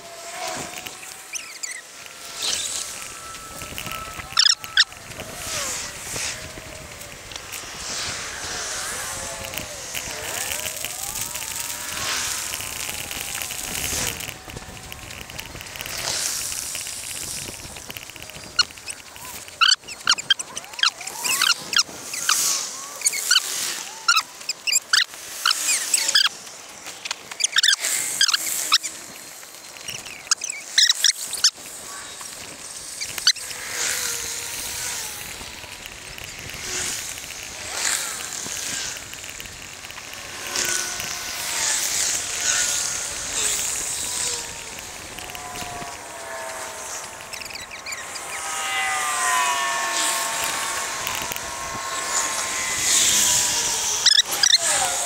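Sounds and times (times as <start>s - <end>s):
wind and tyres hissing: 0.0s - 55.0s
wavering whistle-like tone: 0.6s - 6.5s.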